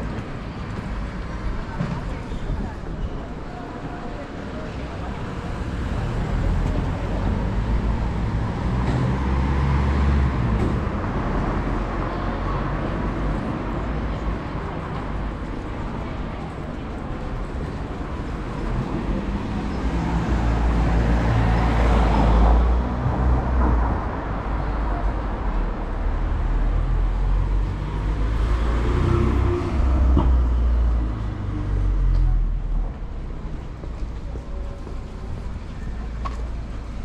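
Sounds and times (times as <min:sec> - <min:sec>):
cars passing: 0:00.0 - 0:37.0.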